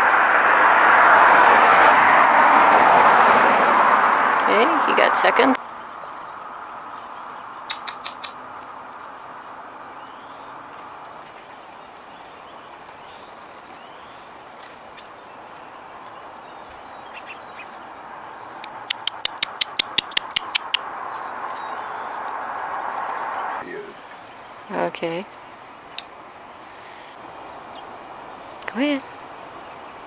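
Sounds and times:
outdoor background noise: 0:00.0 - 0:30.0
rapid sharp clicks: 0:18.6 - 0:20.8.

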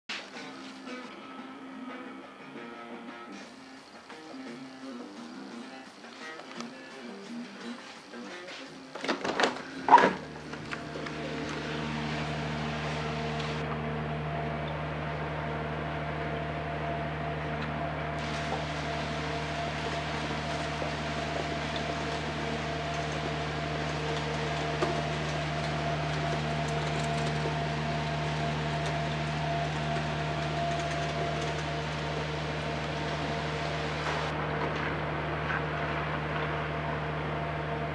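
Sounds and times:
machine humming: 0:09.7 - 0:37.9.

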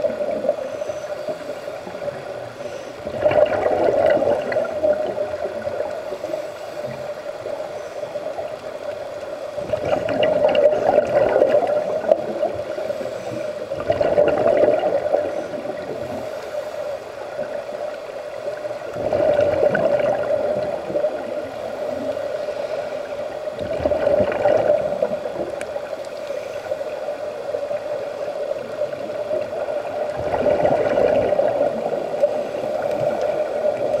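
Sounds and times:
steady hum: 0:00.0 - 0:34.0
bubbles gurgling: 0:03.0 - 0:06.1, 0:09.6 - 0:12.8, 0:13.7 - 0:16.2, 0:18.7 - 0:21.6, 0:23.6 - 0:25.9, 0:28.6 - 0:34.0
underwater regulator breathing: 0:10.7 - 0:13.9.

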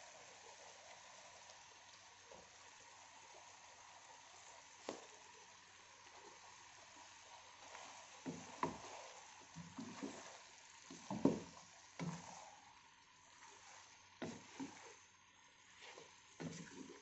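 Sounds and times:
steady hiss: 0:00.0 - 0:17.0
wooden spoon scraping pot: 0:07.6 - 0:12.5, 0:13.3 - 0:15.1, 0:15.7 - 0:17.0.

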